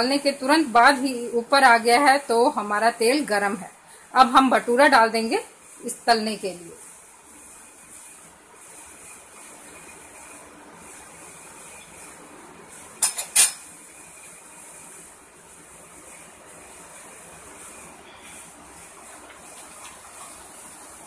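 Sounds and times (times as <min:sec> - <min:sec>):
hot oil frying hiss: 0:00.0 - 0:21.0.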